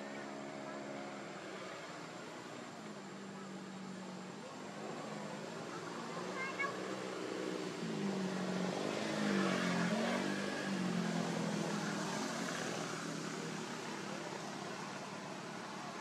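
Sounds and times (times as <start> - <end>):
vehicle engine passing: 3.4 - 16.0.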